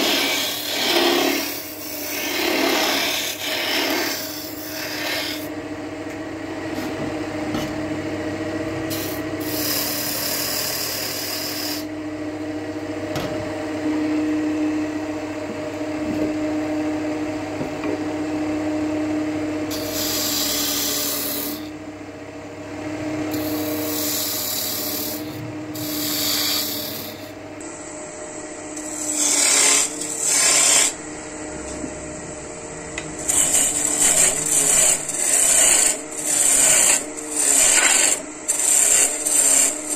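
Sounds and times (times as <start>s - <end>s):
tool scraping spinning wood: 0.0s - 5.5s, 8.9s - 11.9s, 19.7s - 21.7s, 23.3s - 27.4s, 28.8s - 31.0s, 33.0s - 39.9s
wood lathe motor hum: 0.0s - 13.0s, 13.6s - 21.8s, 22.6s - 39.9s.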